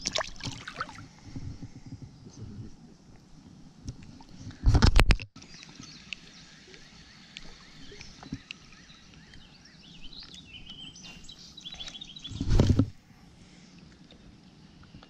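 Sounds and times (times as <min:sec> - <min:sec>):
faint bird calls: 0:05.4 - 0:12.6.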